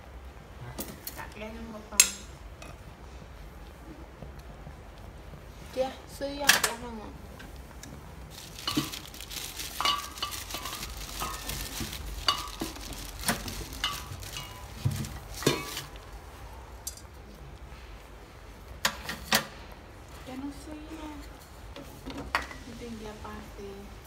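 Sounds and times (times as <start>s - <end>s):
food sizzling: 8.3s - 16.0s.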